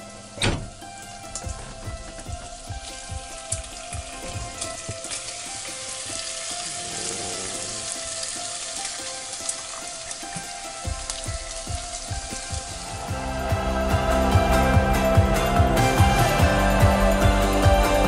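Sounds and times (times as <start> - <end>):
meat sizzling in a pot: 1.1 - 14.3.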